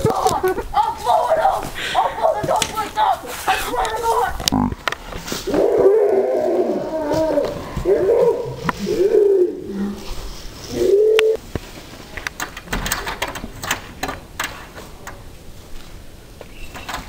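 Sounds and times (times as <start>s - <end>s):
footsteps in dry leaves: 0.0s - 12.2s.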